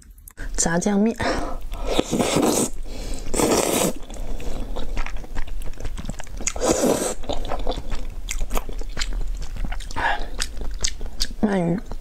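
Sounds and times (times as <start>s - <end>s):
noodles slurped: 1.6s - 11.4s
wet chewing clicks and smacks: 4.0s - 6.6s, 7.2s - 12.0s.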